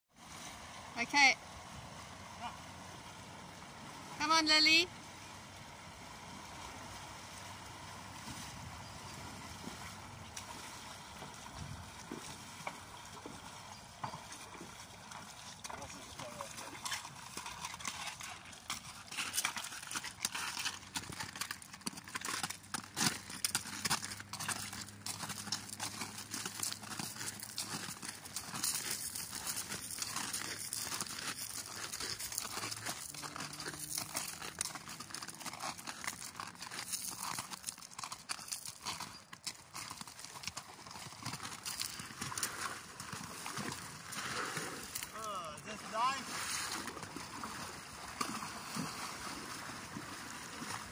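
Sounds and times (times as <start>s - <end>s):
splashing in shallow water: 0.2s - 50.9s
horse hooves on gravel: 6.2s - 50.9s
bare feet crunching on gravel: 20.3s - 38.8s.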